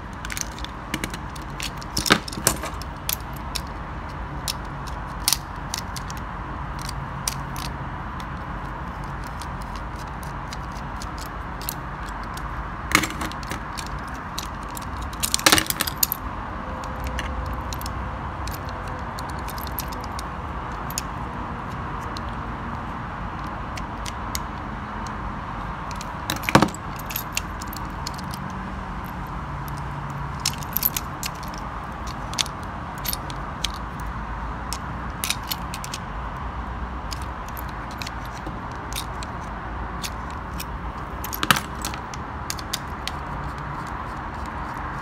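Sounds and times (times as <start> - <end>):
screwdriver and plastic parts clicking: 0.1 - 3.8, 4.4 - 16.2, 25.9 - 28.5, 30.4 - 34.1, 37.1 - 45.0.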